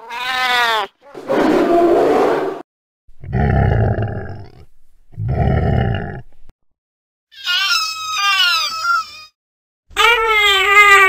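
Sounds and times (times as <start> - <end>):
polar bear roaring: 3.2 - 6.3.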